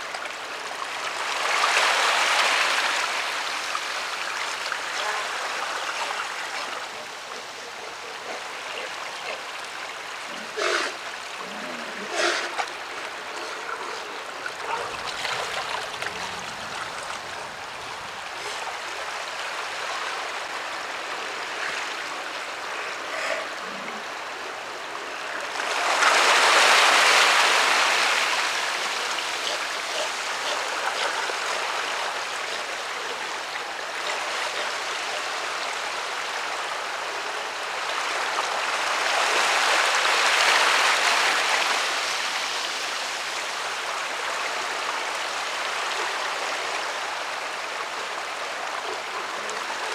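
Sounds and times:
surf washing over rocks: 0:00.0 - 0:07.2, 0:09.4 - 0:22.6, 0:25.4 - 0:34.6, 0:37.6 - 0:49.9
big waves surging: 0:01.0 - 0:06.9, 0:14.2 - 0:21.0, 0:25.5 - 0:32.5.

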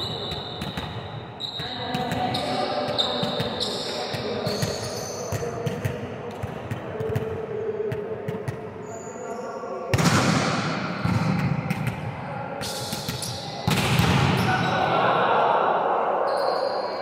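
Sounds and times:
volleyballs hit and bouncing: 0:00.0 - 0:08.8, 0:09.9 - 0:14.6
voices: 0:01.4 - 0:17.0.

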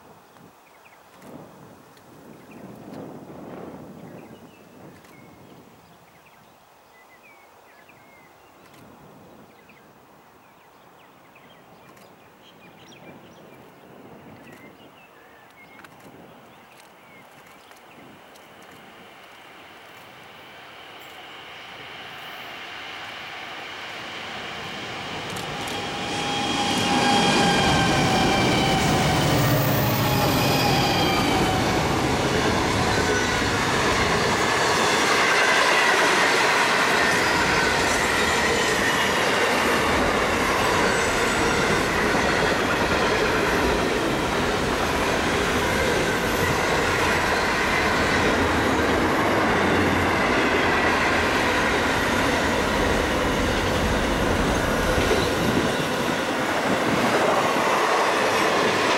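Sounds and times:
train wheel squeal: 0:18.5 - 0:58.9
freight train rumbling past: 0:18.9 - 0:58.9.

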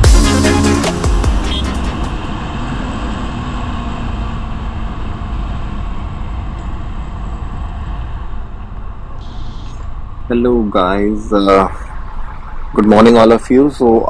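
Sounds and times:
electronic music: 0:00.0 - 0:02.3
motorcycle engine: 0:00.0 - 0:06.3.

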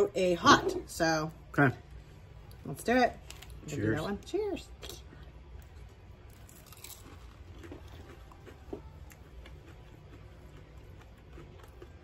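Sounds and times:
low room hum: 0:00.0 - 0:12.0
faint chewing: 0:04.8 - 0:12.0.

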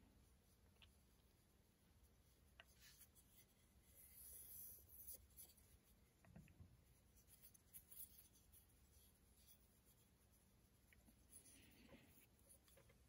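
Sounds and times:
faint scratchy rustling: 0:00.0 - 0:13.0.

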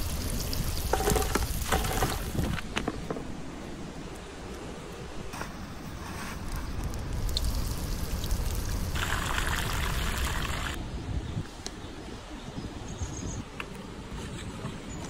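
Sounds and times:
hot oil sizzling: 0:00.0 - 0:02.4, 0:06.8 - 0:10.8.

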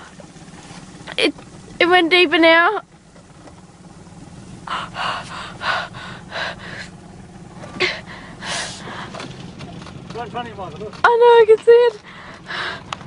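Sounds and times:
breathy exhale: 0:04.6 - 0:07.1, 0:07.8 - 0:09.3, 0:12.0 - 0:13.0
person gasping: 0:04.7 - 0:07.0, 0:07.8 - 0:09.2.

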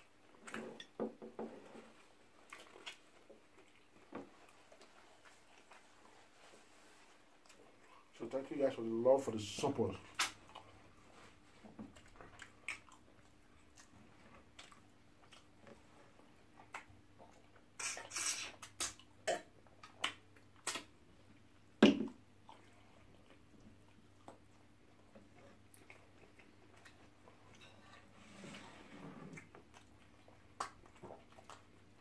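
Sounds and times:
wet chewing and mouth clicks: 0:01.8 - 0:06.3, 0:07.1 - 0:08.1, 0:10.0 - 0:28.1, 0:29.3 - 0:32.0.

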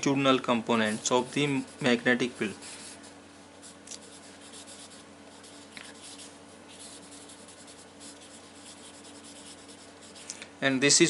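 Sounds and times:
marker writing on paper: 0:03.6 - 0:10.2.

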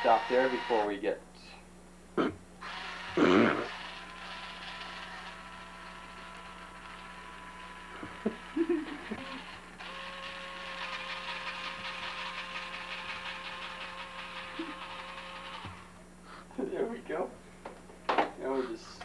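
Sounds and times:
electric hand mixer whirring: 0:00.0 - 0:00.9, 0:02.6 - 0:15.9.

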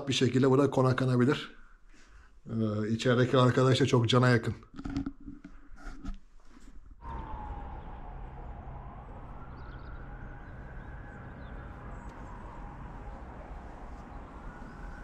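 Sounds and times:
distant siren wailing: 0:07.0 - 0:15.0.

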